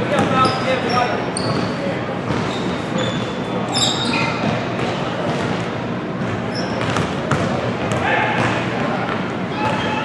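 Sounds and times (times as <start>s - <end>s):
sneaker squeaks: 0.0s - 5.6s, 6.2s - 8.6s, 9.5s - 10.0s
basketball bouncing on hardwood floor: 6.8s - 8.5s.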